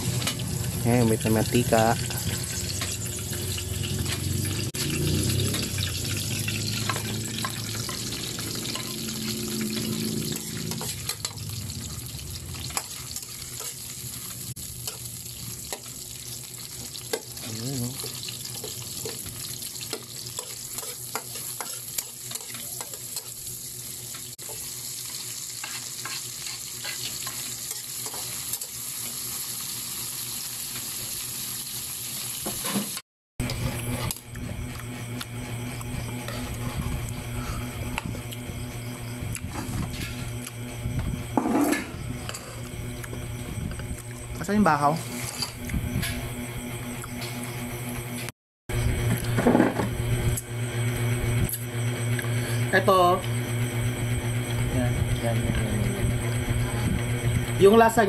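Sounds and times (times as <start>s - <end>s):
insects frying in hot oil: 0.0s - 58.0s
spoon stirring against metal pan: 14.8s - 23.4s, 24.4s - 28.8s.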